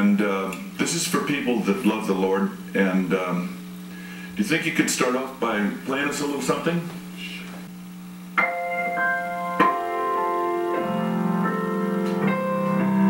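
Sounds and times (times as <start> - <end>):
slow piano chords: 8.4 - 13.0.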